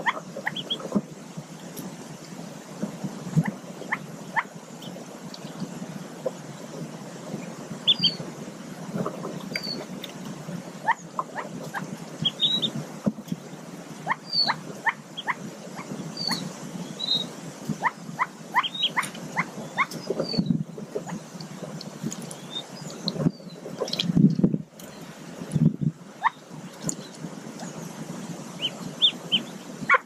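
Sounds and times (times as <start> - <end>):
ducklings peeping: 0.0 - 1.1, 3.4 - 6.4, 7.4 - 8.3, 9.0 - 13.4, 14.0 - 24.2, 26.2 - 30.0.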